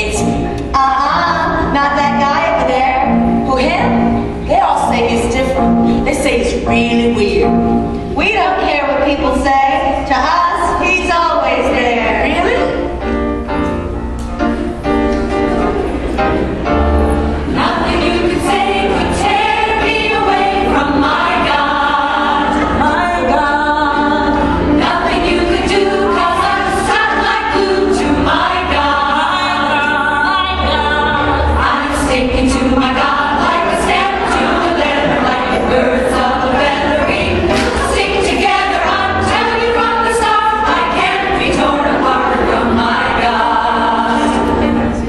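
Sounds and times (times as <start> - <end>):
choir singing: 17.2 - 45.0.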